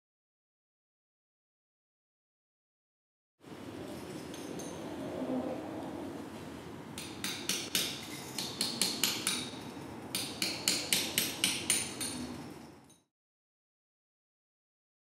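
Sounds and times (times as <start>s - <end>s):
hammer tapping on ceramic tiles: 7.0s - 9.6s, 10.2s - 12.3s.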